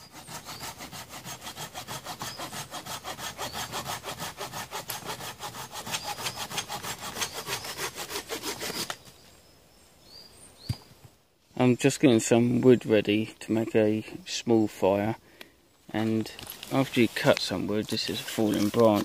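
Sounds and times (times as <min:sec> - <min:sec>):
hand saw cutting branch: 0:00.0 - 0:09.0, 0:16.7 - 0:19.0.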